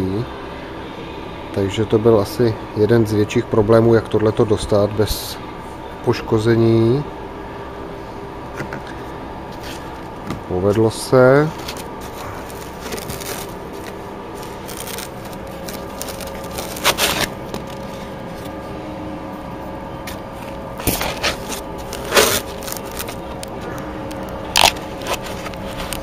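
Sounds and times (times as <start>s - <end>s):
steady hum: 0.0s - 26.0s
plastic scraping against foam: 11.5s - 18.1s, 20.8s - 23.3s, 24.6s - 26.0s.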